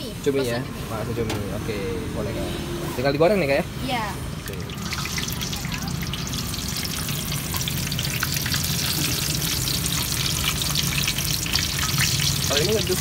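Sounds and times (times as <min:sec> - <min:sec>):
deep-frying sizzle in oil: 0:04.2 - 0:13.0.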